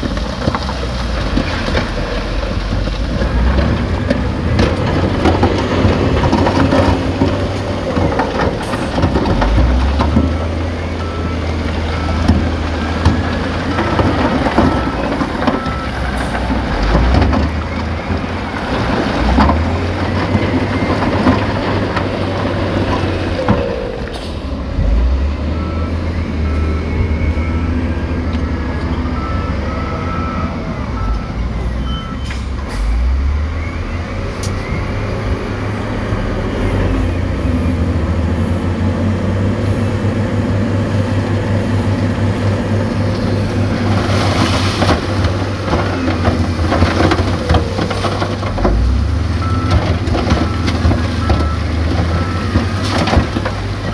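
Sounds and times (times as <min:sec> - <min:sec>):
heavy diesel engines droning: 0:00.0 - 0:53.9
reversing beeper: 0:10.3 - 0:16.0, 0:24.9 - 0:35.6, 0:49.4 - 0:52.8.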